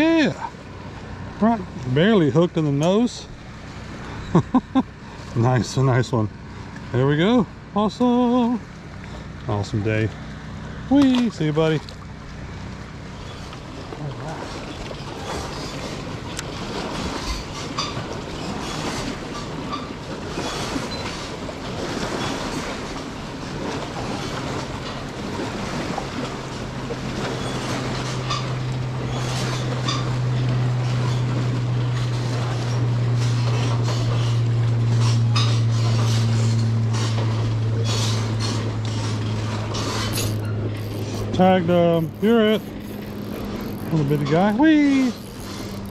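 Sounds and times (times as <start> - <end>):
motorboat engine droning: 0.0 - 45.9
water splashing against boat: 0.0 - 45.9.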